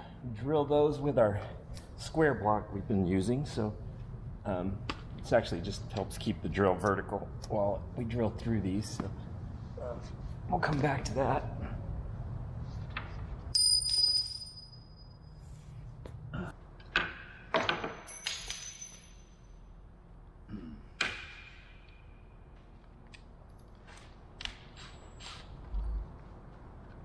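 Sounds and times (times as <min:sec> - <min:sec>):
metal hardware clinking: 0:16.8 - 0:19.5.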